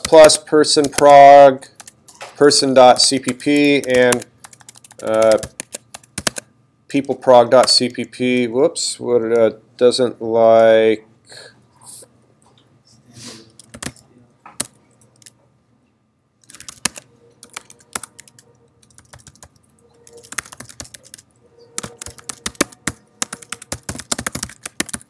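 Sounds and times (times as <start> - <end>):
typing on computer keyboard: 0.0 - 8.1, 13.6 - 14.0, 14.6 - 15.4, 16.4 - 25.0.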